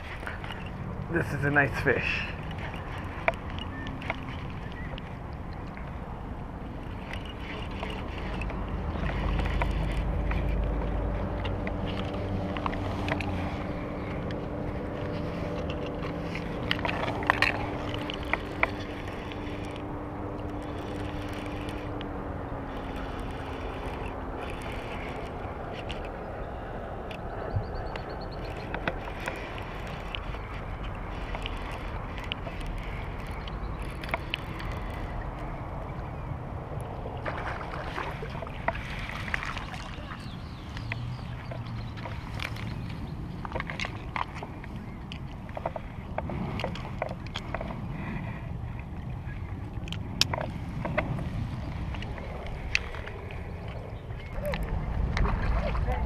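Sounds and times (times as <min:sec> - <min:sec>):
steady low hum: 0:00.0 - 0:43.4
water noise: 0:00.0 - 0:56.0
wind buffeting rumble: 0:00.0 - 0:56.0
wind on microphone: 0:00.0 - 0:56.0.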